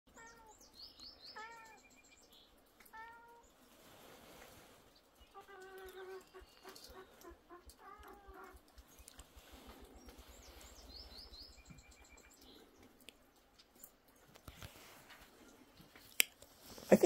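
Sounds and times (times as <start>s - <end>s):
cat meowing: 0.1s - 0.5s, 1.4s - 1.8s, 2.9s - 3.4s.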